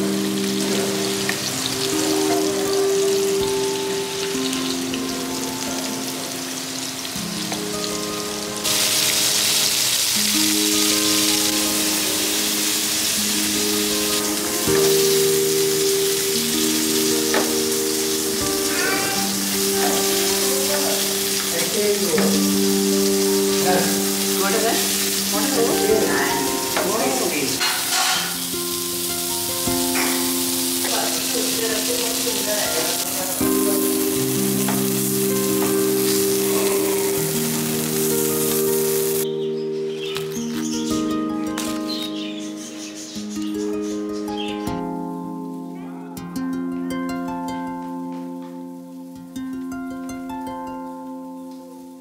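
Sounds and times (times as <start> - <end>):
fish sizzling in hot oil: 0.0 - 39.3
soft background music: 0.0 - 52.0.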